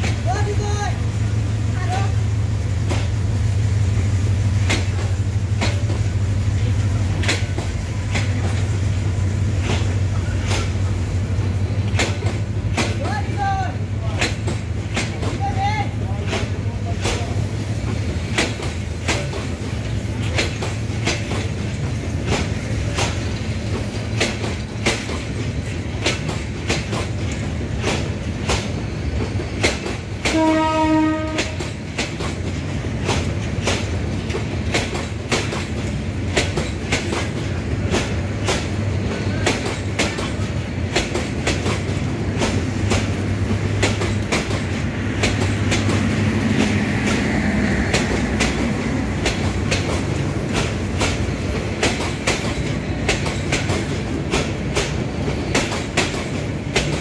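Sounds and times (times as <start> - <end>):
low train rumble: 0.0 - 57.0
train wheels clickety-clack: 0.0 - 57.0
train horn: 30.2 - 31.7.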